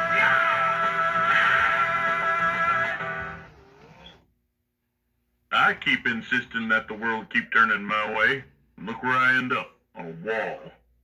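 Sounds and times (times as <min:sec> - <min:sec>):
guitar music through small speaker: 0:00.0 - 0:03.7.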